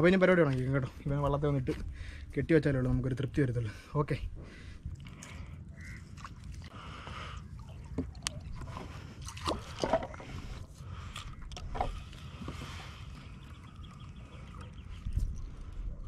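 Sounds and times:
steady low rumble: 0.0 - 16.0
water sloshing: 4.5 - 16.0
knocks and scrapes in boat: 7.9 - 10.6, 11.6 - 13.1.

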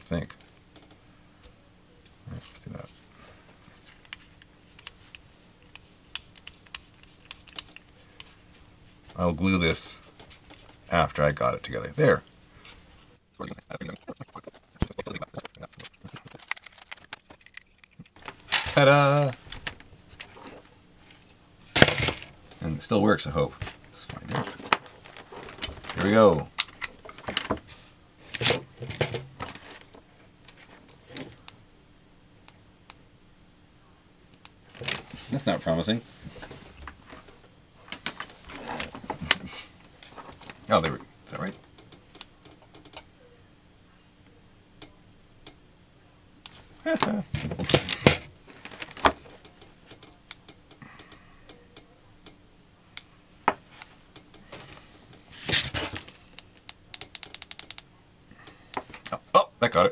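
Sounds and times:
cable handling rustle: 2.3 - 10.9, 12.6 - 22.3, 23.6 - 27.7, 36.2 - 40.7, 47.4 - 50.2.

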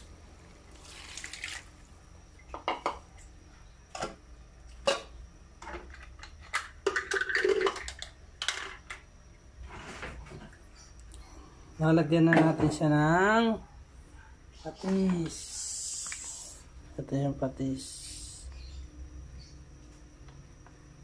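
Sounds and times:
liquid pouring into pot: 0.7 - 1.8.

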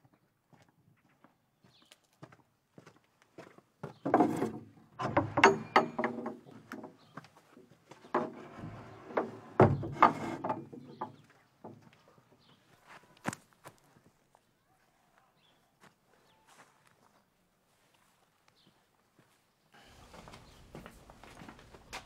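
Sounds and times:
footsteps on dirt: 0.0 - 4.0, 6.6 - 8.1, 11.2 - 22.0
wooden shed door rattling: 4.0 - 7.1, 8.1 - 11.8.

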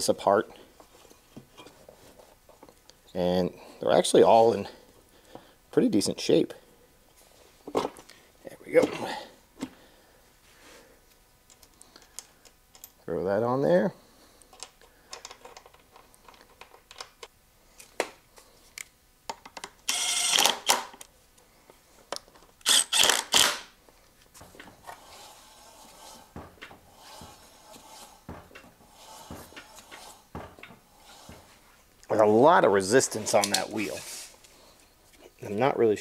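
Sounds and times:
cordless power driver whirring: 19.9 - 20.7, 22.6 - 23.6
wheel rubbing as it spins: 24.8 - 31.6
clicks of tools and parts: 33.2 - 33.7.

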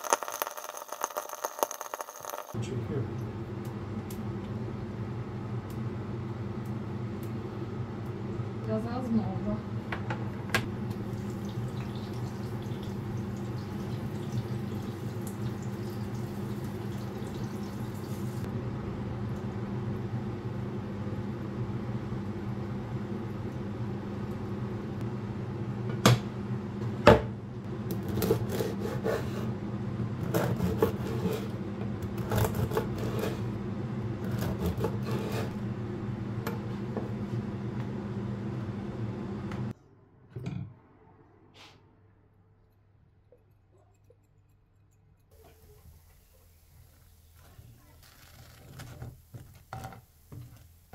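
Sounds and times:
steady low hum: 2.5 - 40.0
bread knife sawing baguette: 28.0 - 29.5, 30.2 - 33.6, 34.2 - 35.6.

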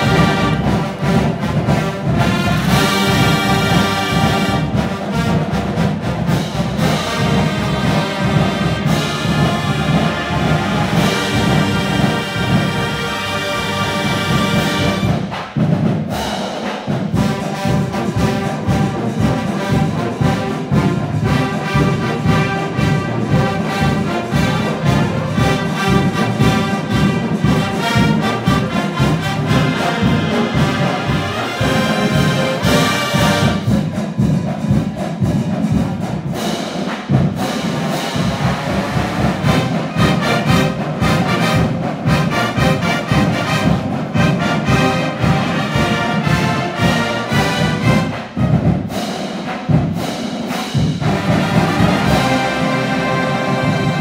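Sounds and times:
drum beat: 0.0 - 54.0
marching band brass: 0.0 - 54.0.

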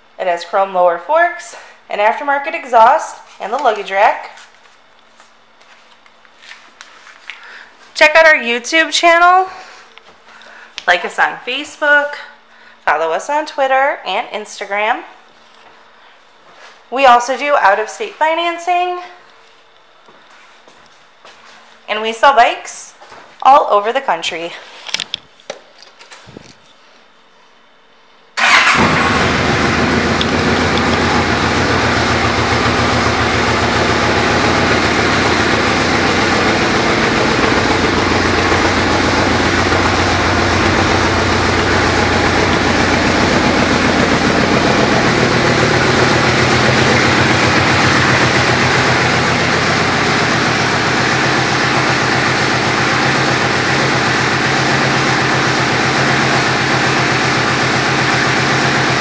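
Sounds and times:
motorcycle engine idling: 28.4 - 59.0.

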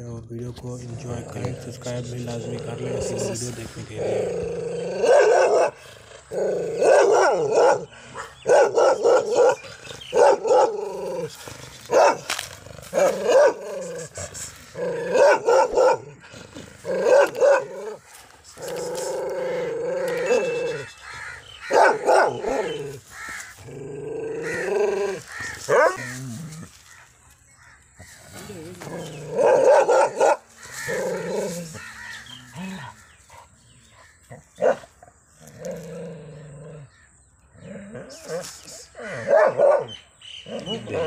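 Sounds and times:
dog barking aggressively: 4.9 - 5.8, 6.4 - 13.9, 14.8 - 16.2, 16.8 - 18.0, 21.6 - 23.3, 24.5 - 26.1, 29.1 - 31.6, 34.6 - 34.9, 39.2 - 41.0.

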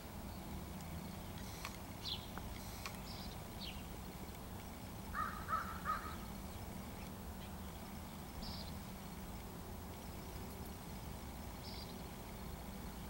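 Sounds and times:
crow cawing: 5.1 - 6.3.

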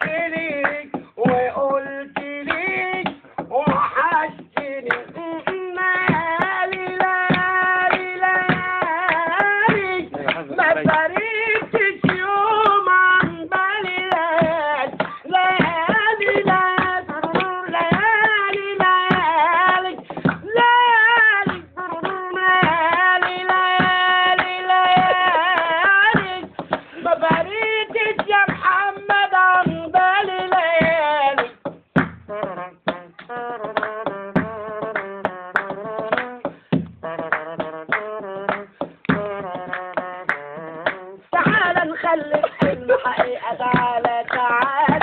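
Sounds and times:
man singing: 0.0 - 31.6, 32.3 - 45.0
hand clapping: 0.0 - 45.0.

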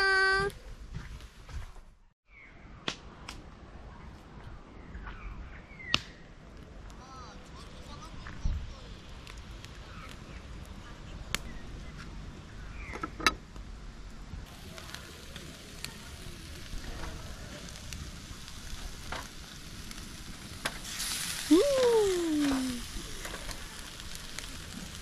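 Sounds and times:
fire popping: 5.2 - 25.0
wood fire crackling: 5.9 - 25.0
meat sizzling on grill: 14.5 - 25.0.

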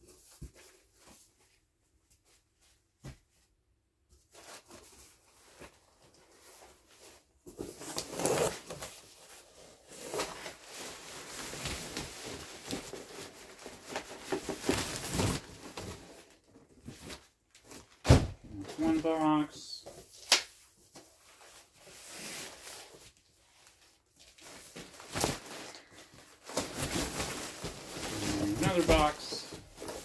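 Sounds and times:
packaging rustling and tearing: 7.6 - 18.0, 21.3 - 30.0.

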